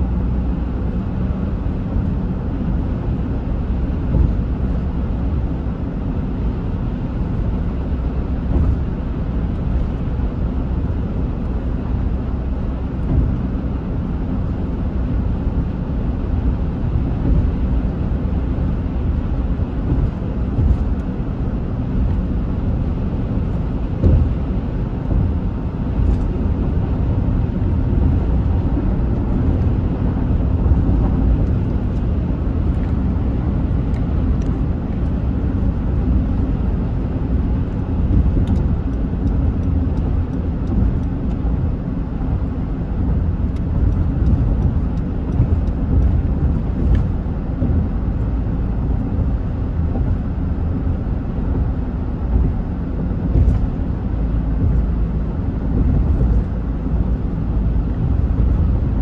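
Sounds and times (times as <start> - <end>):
car interior road rumble: 0.0 - 59.0.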